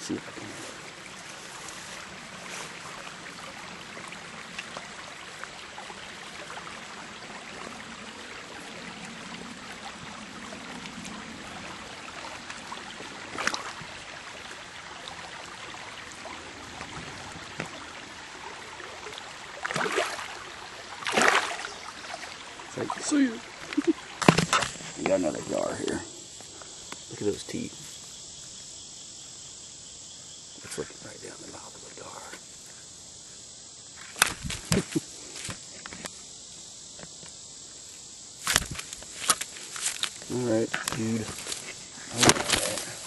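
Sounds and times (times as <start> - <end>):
creek water trickling: 0.0 - 43.0
sharp water splash: 12.2 - 15.3, 18.8 - 24.8
fish thrashing splashes: 19.6 - 20.4, 21.0 - 24.8.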